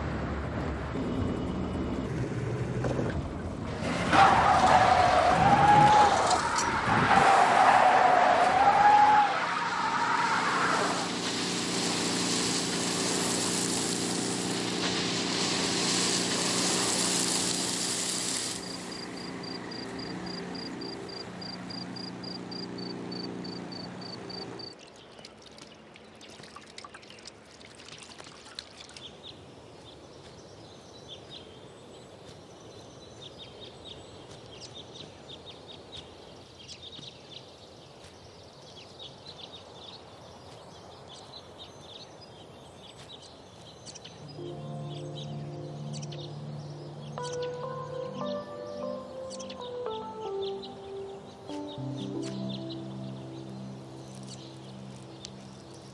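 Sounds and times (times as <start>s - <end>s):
water trickling and splashing: 10.7s - 18.9s, 24.7s - 30.0s
car engine running: 11.0s - 24.7s.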